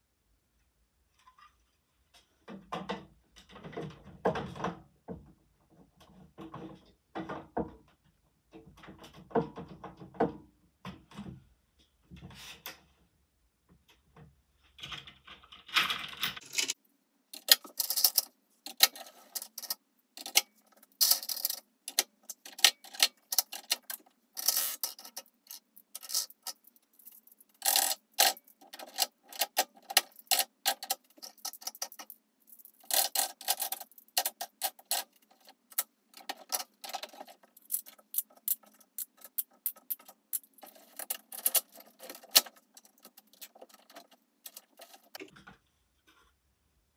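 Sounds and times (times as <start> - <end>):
plastic mechanism clicking and rattling: 17.4 - 45.6.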